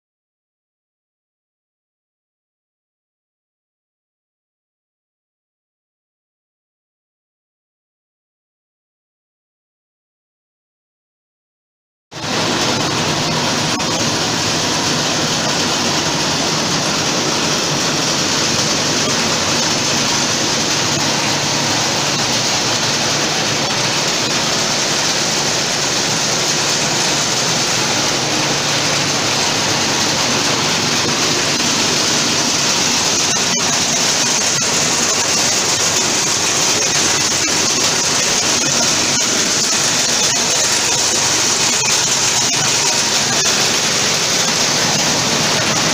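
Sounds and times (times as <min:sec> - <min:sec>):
thresher rushing noise: 0:12.2 - 0:45.9.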